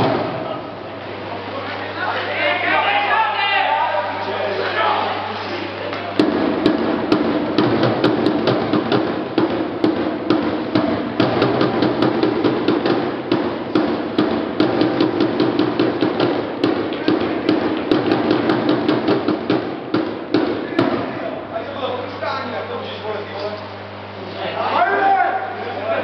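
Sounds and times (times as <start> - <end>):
steady low hum: 0.0 - 26.0
knocking and banging: 6.1 - 21.2.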